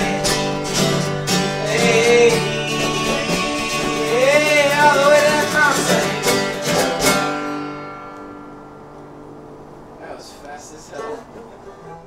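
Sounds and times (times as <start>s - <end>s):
strummed acoustic guitar: 0.0s - 9.7s.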